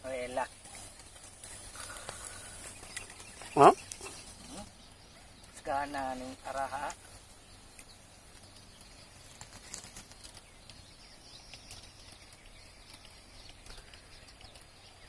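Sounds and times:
faint clicks: 7.7 - 15.0.

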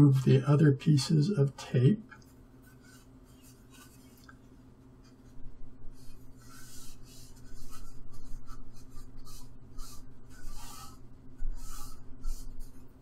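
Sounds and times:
steady low hum: 0.0 - 13.0
paper towel scrubbing glass: 5.9 - 13.0.

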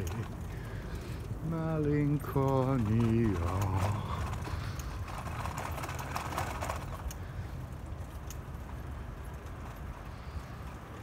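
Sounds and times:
clicks and rattles: 0.0 - 7.3
bicycle rolling on cracked asphalt: 0.0 - 11.0.

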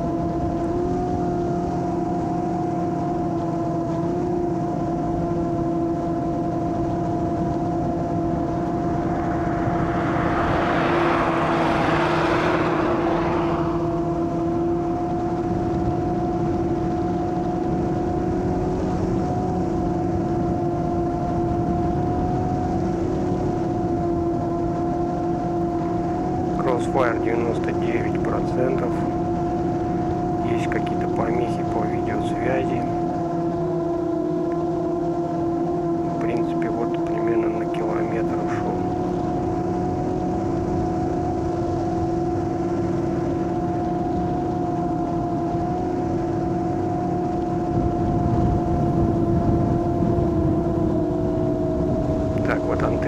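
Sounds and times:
drone motors humming: 0.0 - 53.0
rushing noise: 7.1 - 15.5.

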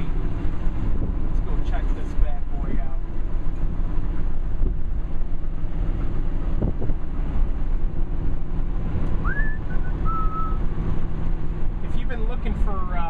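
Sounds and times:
car engine running: 0.0 - 13.0
road and wind noise: 0.0 - 13.0
short rising whistle: 9.2 - 10.7.

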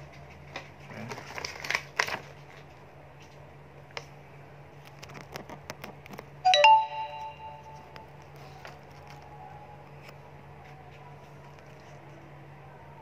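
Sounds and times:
paper rustling: 0.4 - 3.4
bell-like chime: 6.5 - 7.9.

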